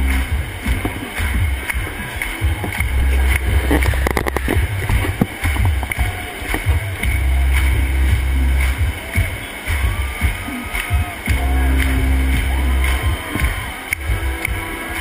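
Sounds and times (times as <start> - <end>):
deep bass from sound system: 0.0 - 14.8
dense crowd noise: 0.0 - 15.0.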